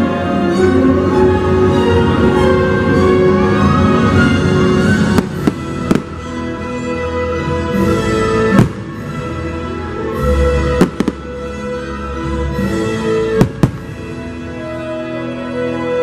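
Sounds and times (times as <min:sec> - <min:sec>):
music playing: 0:00.0 - 0:16.0
firework shells bursting: 0:13.4 - 0:14.0.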